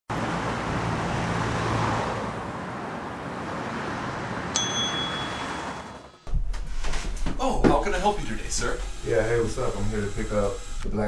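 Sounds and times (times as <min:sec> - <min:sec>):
traffic noise: 0:00.1 - 0:06.3
bright metallic ding: 0:04.6 - 0:05.9.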